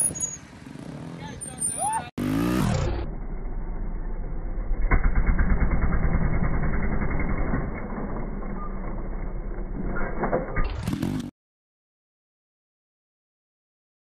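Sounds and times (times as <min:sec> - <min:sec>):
motorcycle engine revving: 0:02.2 - 0:09.8, 0:10.8 - 0:11.3.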